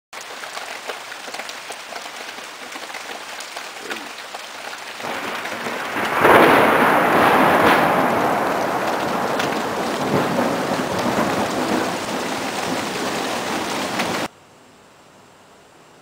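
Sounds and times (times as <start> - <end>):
rain pattering: 0.1 - 14.3
thunder rumbling and crashing: 5.0 - 14.3.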